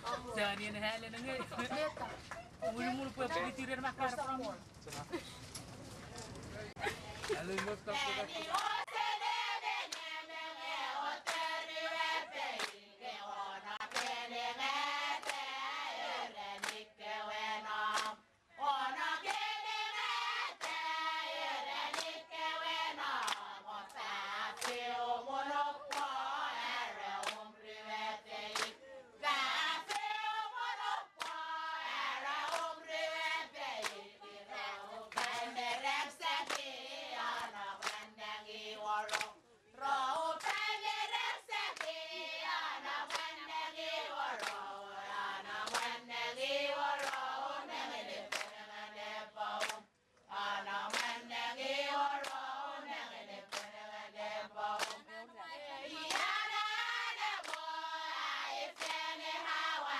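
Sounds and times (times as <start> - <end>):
hand claps and slaps: 7.2 - 7.8, 8.4 - 8.9, 11.2 - 11.5, 12.6 - 12.8, 13.8 - 14.2, 15.2 - 15.5, 16.6 - 16.8, 17.9 - 18.2, 19.2 - 19.5, 20.6 - 20.8, 21.9 - 22.2, 23.2 - 24.0, 24.6 - 24.9, 25.9 - 26.2, 27.2 - 27.5, 28.6 - 28.8, 29.9 - 30.1, 31.2 - 31.4, 32.5 - 32.7, 33.8 - 34.0, 35.1 - 35.6, 36.4 - 36.7, 37.3 - 38.1, 39.0 - 39.4, 40.4 - 40.7, 41.7 - 42.0, 43.1 - 43.3, 44.4 - 44.7, 45.6 - 46.0, 47.0 - 47.3, 48.3 - 48.6, 49.6 - 49.9, 50.9 - 51.2, 52.2 - 52.4, 53.5 - 53.7, 54.8 - 55.1, 56.1 - 56.4, 57.4 - 57.7, 58.8 - 59.0
group chanting in unison: 7.9 - 59.9.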